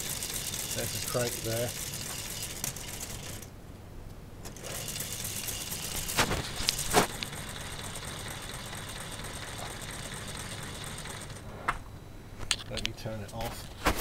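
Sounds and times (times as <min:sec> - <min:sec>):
plastic model engine rattling: 0:00.0 - 0:03.5, 0:04.5 - 0:11.4.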